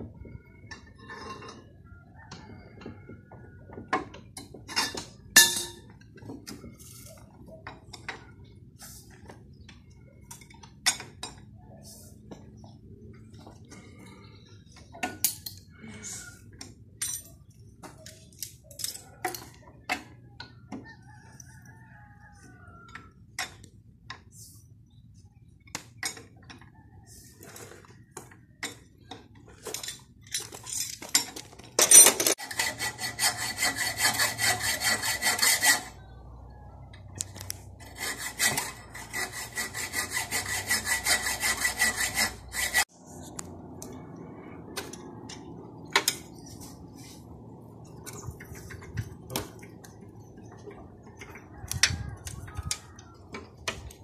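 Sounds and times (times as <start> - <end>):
metal tools clinking and tapping: 3.7 - 8.4, 9.6 - 11.6, 14.6 - 15.7, 16.6 - 20.9, 28.6 - 32.4
fast rasping strokes: 32.4 - 36.0, 37.8 - 42.9.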